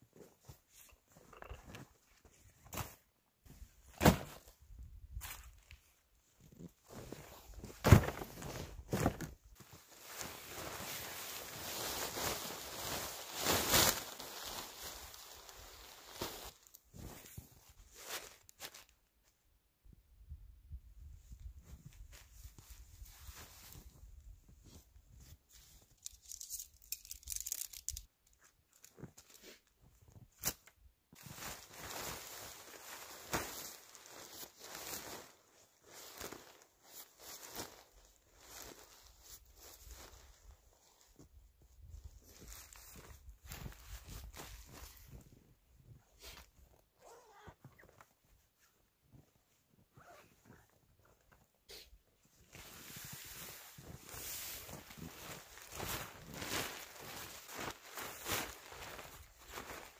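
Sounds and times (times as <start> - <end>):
soft handling rustles: 0.0 - 19.4, 31.1 - 59.9
tent fabric rustling: 0.1 - 18.9, 21.4 - 28.0, 28.8 - 59.9.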